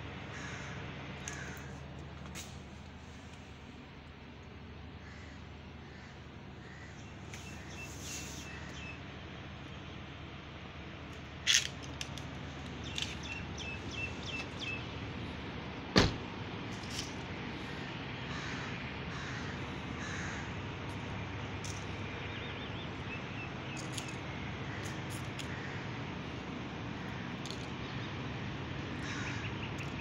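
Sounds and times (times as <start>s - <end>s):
low background hum: 0.0s - 30.0s
crows cawing: 0.2s - 1.9s, 5.0s - 7.1s, 17.7s - 21.0s, 24.6s - 26.0s, 28.9s - 29.8s
small birds chirping: 12.7s - 15.3s, 29.0s - 30.0s
car door shutting: 15.9s - 16.3s.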